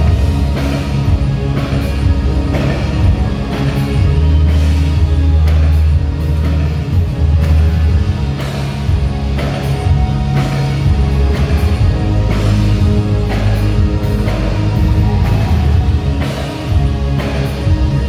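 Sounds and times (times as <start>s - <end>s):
bass guitar: 0.0s - 18.0s
drums: 0.0s - 18.0s
electric guitar: 0.0s - 18.0s
keyboards: 0.0s - 18.0s.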